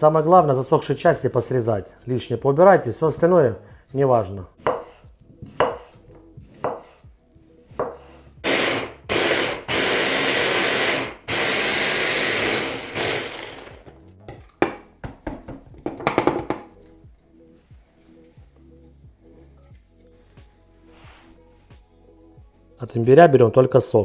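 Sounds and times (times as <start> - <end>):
knife cutting on a board: 4.6 - 7.1, 7.8 - 8.3
electric juicer running: 8.5 - 13.9.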